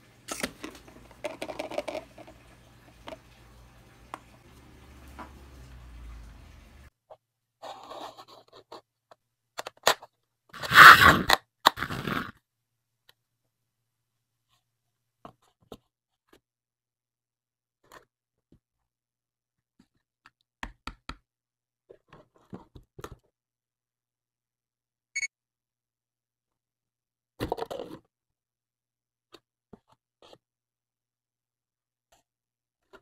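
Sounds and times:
cardboard scraping: 10.6 - 12.3.

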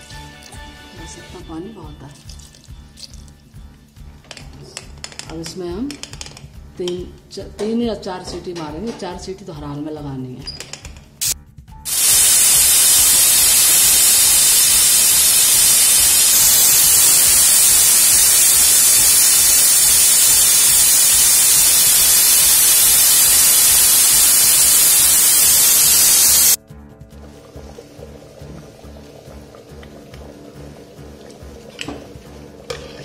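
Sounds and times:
pressure cooker steam hiss: 11.2 - 26.6.

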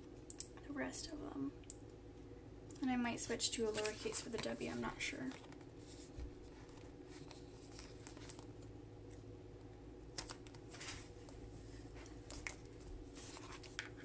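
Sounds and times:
steady low hum: 0.0 - 14.0
sticker sheet rustling: 3.6 - 8.5.

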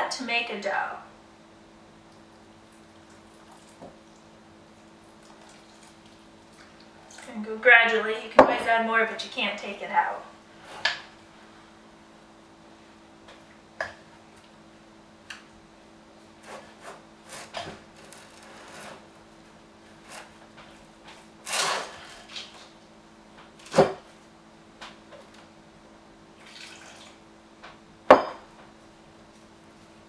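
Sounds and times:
wooden spoon scraping dough in bowl: 16.4 - 19.1.

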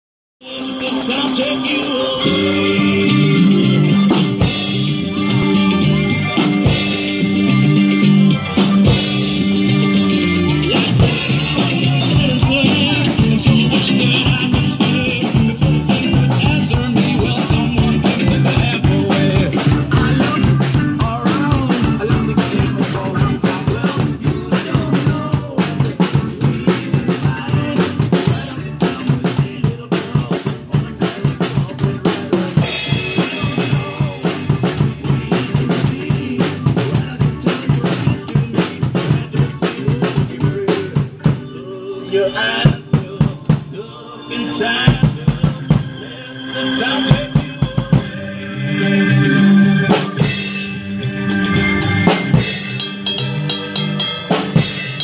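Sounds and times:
drum kit playing: 0.4 - 41.6, 42.5 - 43.8, 44.5 - 55.0
recorded backing music: 0.4 - 55.0.

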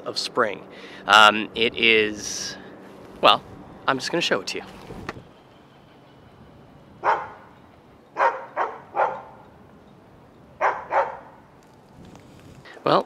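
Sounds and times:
dog barking: 7.0 - 7.5, 8.2 - 9.4, 10.6 - 11.4.

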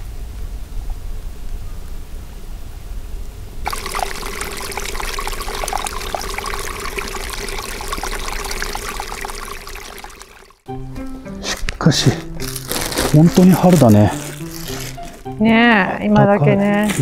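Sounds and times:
water trickling over mud: 3.6 - 10.6, 12.4 - 15.4.

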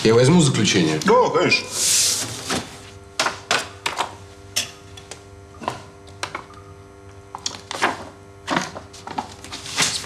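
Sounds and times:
paper rustling on a desk: 8.9 - 10.0.

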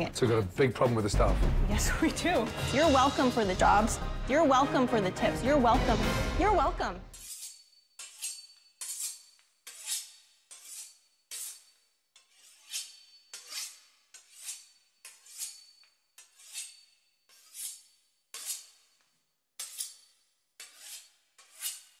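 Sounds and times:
knife sawing through pastry crust: 7.1 - 19.0, 19.6 - 22.0.

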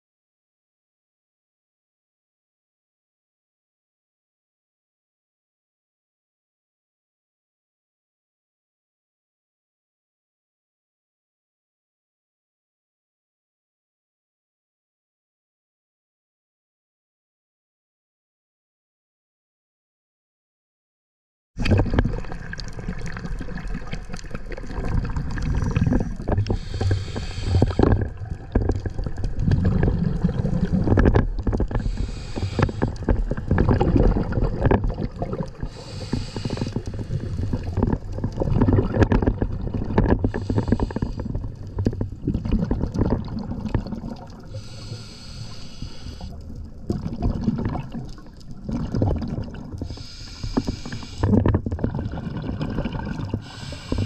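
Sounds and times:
rumble of water and bubbles: 21.6 - 54.0
regulator breathing hiss: 25.6 - 27.8, 31.8 - 33.0, 35.7 - 37.7, 40.3 - 41.3, 44.5 - 46.4, 49.9 - 51.3, 53.4 - 54.0.

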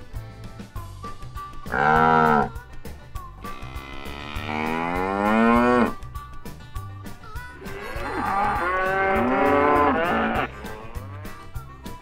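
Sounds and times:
cattle mooing: 1.7 - 2.6, 3.5 - 6.0, 7.6 - 11.5.

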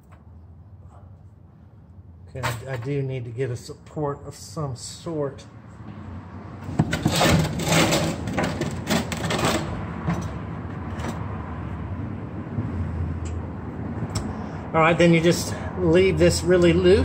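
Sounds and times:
plastic can scraping on concrete: 6.8 - 9.8.

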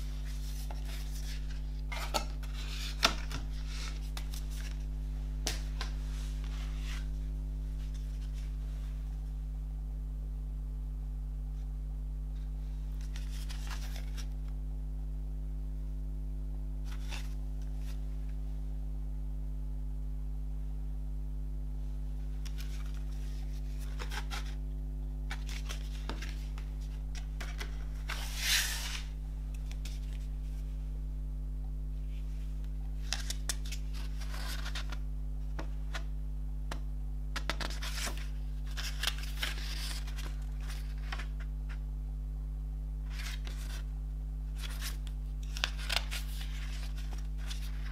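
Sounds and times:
low electrical hum: 0.0 - 47.9
cardboard and paper rustling: 0.2 - 7.2, 13.0 - 14.4, 22.5 - 24.6, 25.3 - 30.6, 33.0 - 36.0, 37.4 - 41.8, 43.0 - 43.9, 44.6 - 47.9
pages turning: 0.2 - 8.6, 13.0 - 14.4, 16.8 - 18.0, 22.4 - 24.6, 25.3 - 30.6, 33.0 - 36.1, 37.4 - 41.8, 43.0 - 43.9, 44.6 - 47.9
booklet sliding out of cardboard: 27.4 - 29.1.

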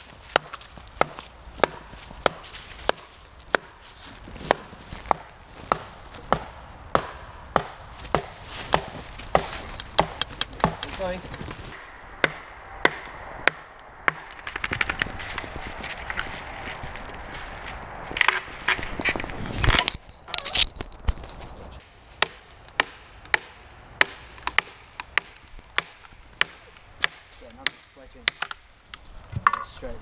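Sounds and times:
wooden mallet striking wedges: 0.3 - 3.8, 4.4 - 11.1, 22.2 - 28.6.

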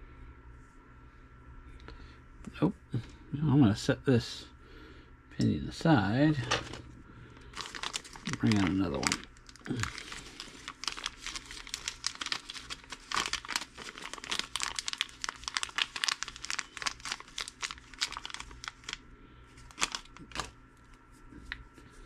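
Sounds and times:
plastic bag crinkling: 7.4 - 20.6.

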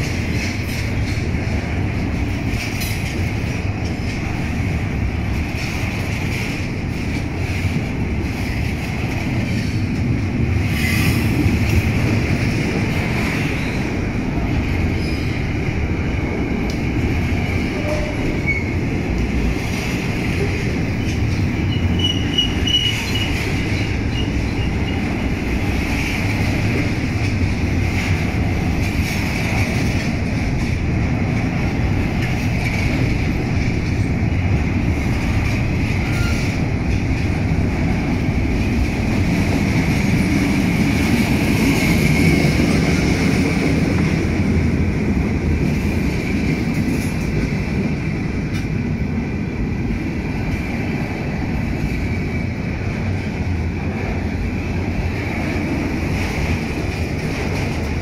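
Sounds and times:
train wheels rumbling on rail: 0.0 - 58.0
high wheel squeal: 21.6 - 25.1, 36.0 - 36.6.

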